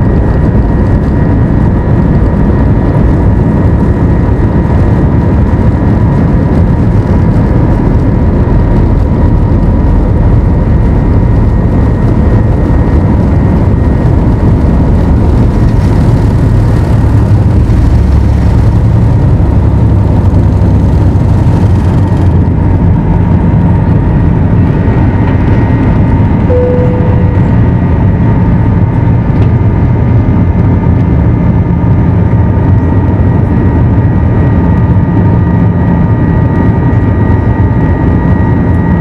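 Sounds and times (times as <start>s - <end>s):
jet engines at takeoff power: 0.0s - 39.0s
wheels rumbling on runway: 0.0s - 39.0s
brief single tone: 26.5s - 27.6s.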